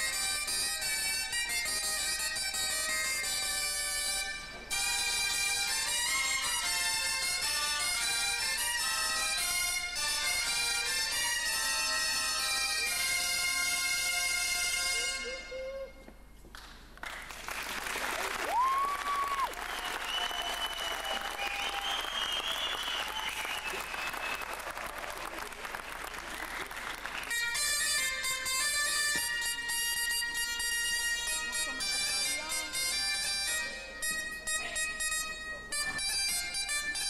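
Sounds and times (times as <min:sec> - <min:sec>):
shawm ensemble playing: 0:00.0 - 0:15.5, 0:27.1 - 0:37.0
pipe band music: 0:00.0 - 0:16.2, 0:27.0 - 0:37.0
audience applauding: 0:16.6 - 0:27.4
rising whistle: 0:18.5 - 0:24.6.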